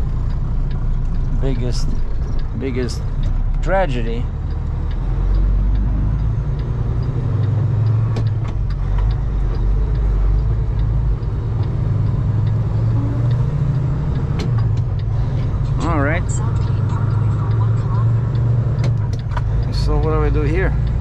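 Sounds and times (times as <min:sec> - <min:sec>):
diesel truck engine under load: 0:00.0 - 0:21.0.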